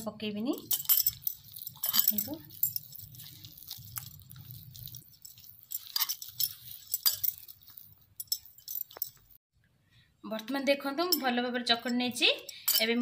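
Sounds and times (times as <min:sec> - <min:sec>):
bangles clinking: 0:00.6 - 0:09.4, 0:11.9 - 0:13.0
hand kneading dough: 0:00.6 - 0:09.4.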